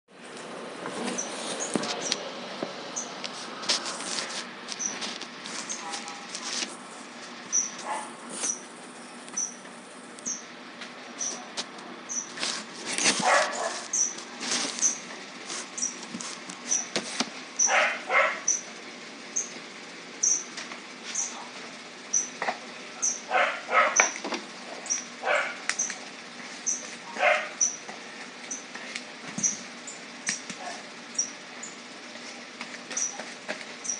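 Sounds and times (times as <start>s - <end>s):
glue brushing and paperboard scraping: 3.3s - 7.2s, 12.3s - 17.3s.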